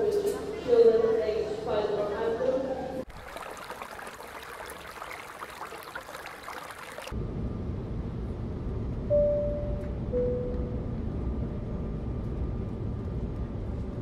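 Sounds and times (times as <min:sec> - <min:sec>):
stream babbling over rocks: 0:03.1 - 0:07.2.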